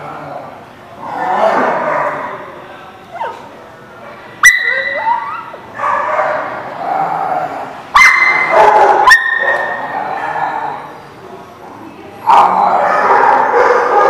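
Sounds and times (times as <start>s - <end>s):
dogs growling in play: 0.0s - 2.4s, 5.1s - 7.9s, 8.5s - 11.0s, 12.2s - 14.0s
dog whining: 3.1s - 3.5s, 4.5s - 5.6s
dog squealing: 4.4s - 5.6s.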